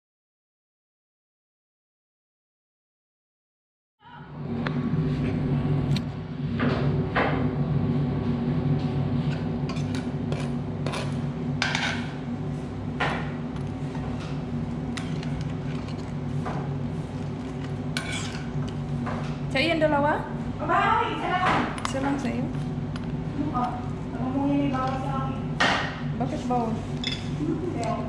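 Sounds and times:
steady low hum: 4.0 - 28.0
dishes and cutlery clinking: 27.0 - 27.4.

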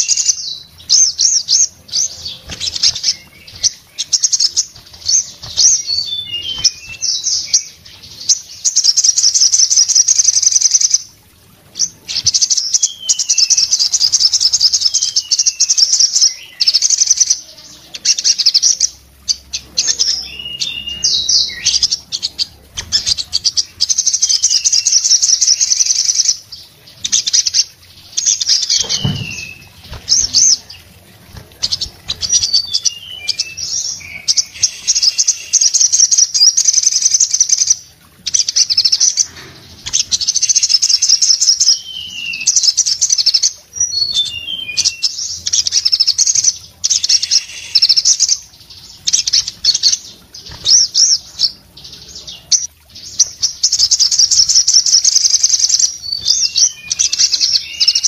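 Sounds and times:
sunbird singing trills: 11.8 - 30.9, 31.5 - 58.0.

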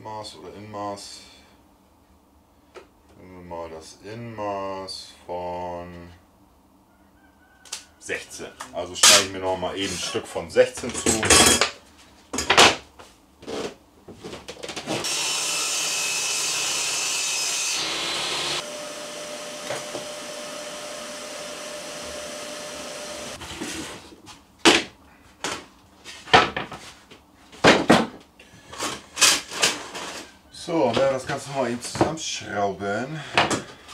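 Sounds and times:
circular saw cutting wood: 15.0 - 23.4.

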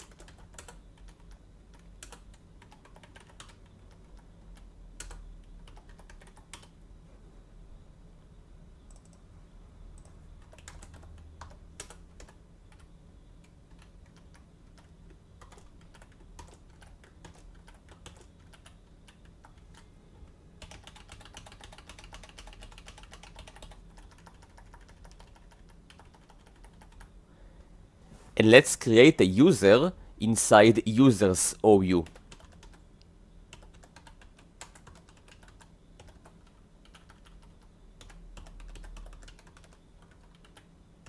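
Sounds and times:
computer keyboard typing: 0.0 - 6.8, 8.9 - 9.2, 10.0 - 27.2, 31.9 - 32.8, 33.5 - 40.7
steady low hum: 0.0 - 41.0.

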